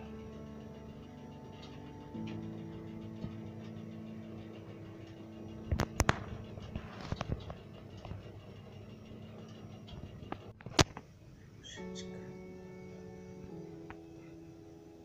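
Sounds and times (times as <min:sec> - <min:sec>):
steady low hum: 0:00.0 - 0:15.0
small clicks and crackles: 0:01.4 - 0:11.1.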